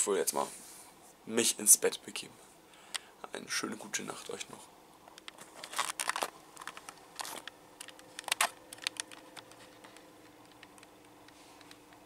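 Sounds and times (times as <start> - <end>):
faint steady hum: 0.0 - 12.0
camera handling clicks and knocks: 5.1 - 9.6.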